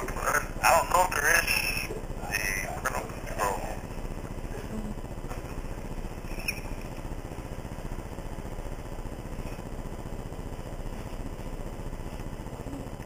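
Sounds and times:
phone call background rumble: 0.0s - 5.7s.

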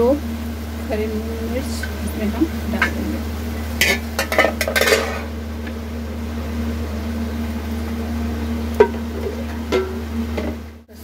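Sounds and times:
steady low hum: 0.0s - 11.0s
steel plate set down: 3.8s - 5.3s, 8.8s - 10.6s.

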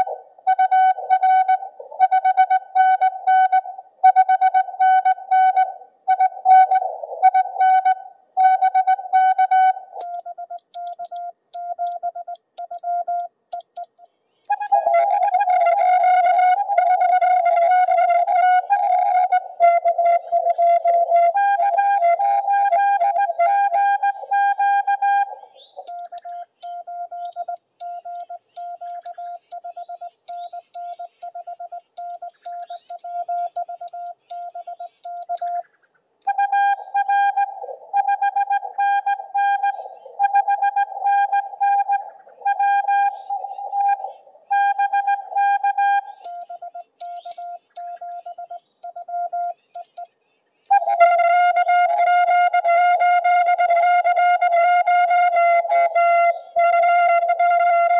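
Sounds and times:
quieter lower morse signal: 0.0s - 35.6s, 36.2s - 50.1s
buzzy morse code sidetone: 8.6s - 13.9s, 25.9s - 35.6s, 36.3s - 44.0s, 44.6s - 50.0s.

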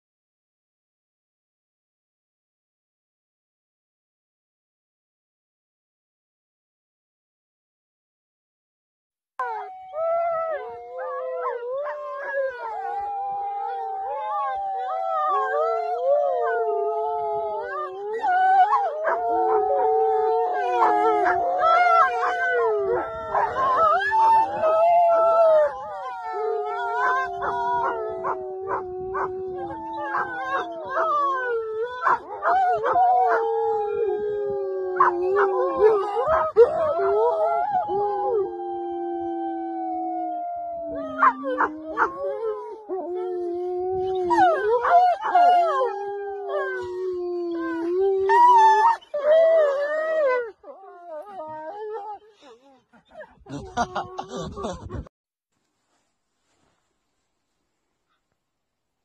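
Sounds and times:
dogs howling: 9.4s - 52.5s
woman howling: 9.6s - 50.3s
dog yelps: 32.0s - 33.4s.

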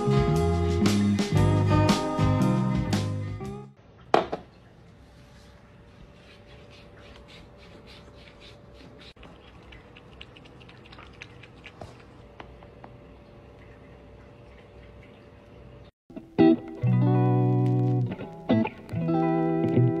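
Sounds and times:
faint steady hum: 3.8s - 15.9s
cat lapping water: 5.6s - 15.9s.

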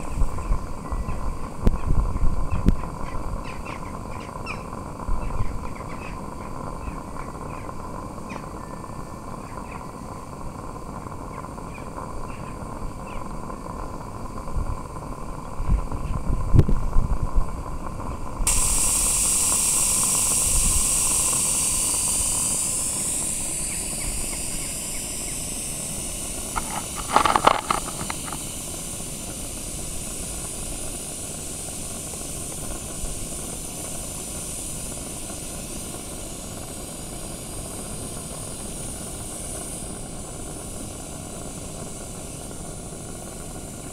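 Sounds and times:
steam hissing: 0.0s - 43.9s
burst of higher tones: 18.5s - 32.4s.

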